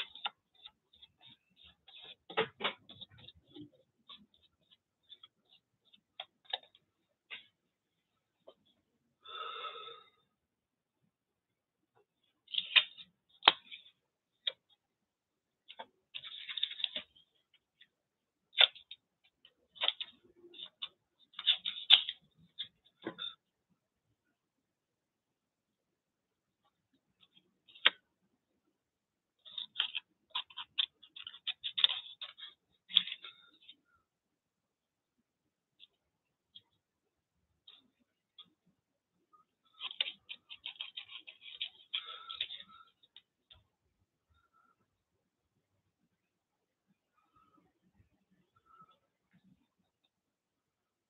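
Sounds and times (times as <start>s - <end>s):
paper rustling: 0.0s - 7.6s, 15.6s - 17.3s, 18.5s - 23.4s, 29.4s - 33.8s, 39.6s - 43.4s
scissors snipping paper: 18.5s - 23.3s, 29.4s - 33.8s, 39.7s - 43.2s.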